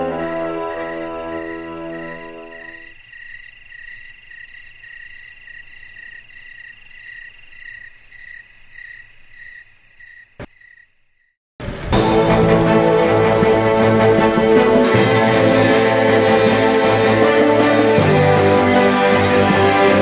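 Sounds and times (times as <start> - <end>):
music: 0.0 - 2.8, 11.6 - 20.0
insects trilling: 0.0 - 11.3
frogs calling: 0.0 - 11.4.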